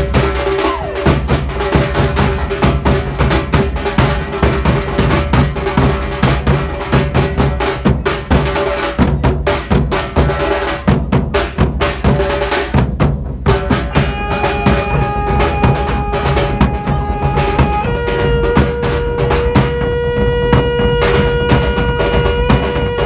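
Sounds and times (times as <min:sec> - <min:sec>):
barrel drums beaten with sticks: 0:00.0 - 0:23.0
steady held tones: 0:13.9 - 0:23.0.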